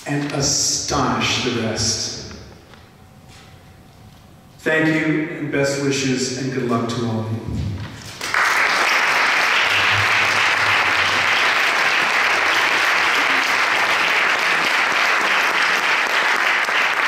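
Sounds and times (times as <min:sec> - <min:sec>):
audience applauding: 0:08.1 - 0:17.0.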